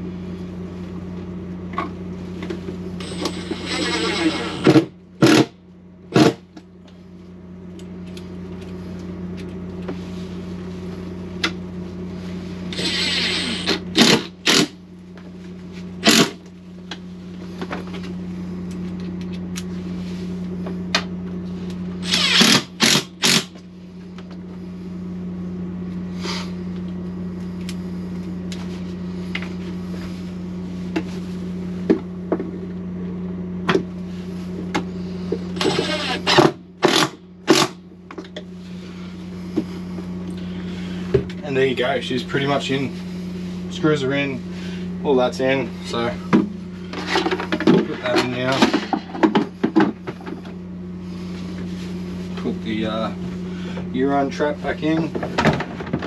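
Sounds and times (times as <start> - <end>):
steady low hum: 0.0 - 56.0
cordless drill driving screws: 12.7 - 14.7, 22.0 - 23.5, 35.6 - 37.7
drill clicks: 12.7 - 14.7, 22.0 - 23.5, 35.6 - 37.7.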